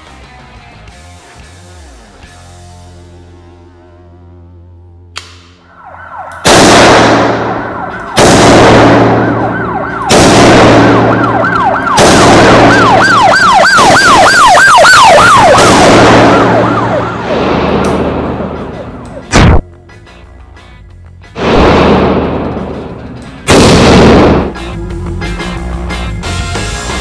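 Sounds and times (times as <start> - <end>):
siren wailing and yelping: 5.6 - 6.5, 7.4 - 8.2, 9.0 - 10.1, 10.7 - 17.4
loud noise bursts: 13.8 - 19.6.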